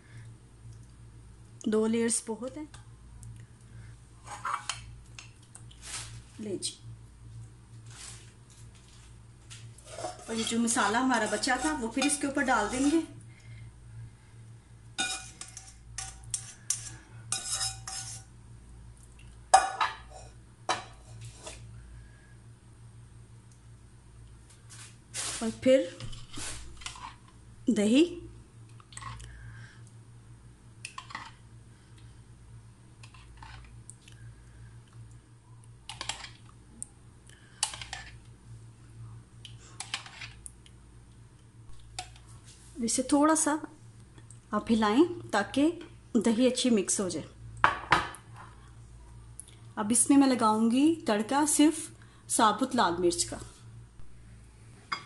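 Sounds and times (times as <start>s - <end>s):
low steady hum: 0.0s - 55.0s
spatula scraping and tapping pot: 9.8s - 13.1s, 15.0s - 18.3s.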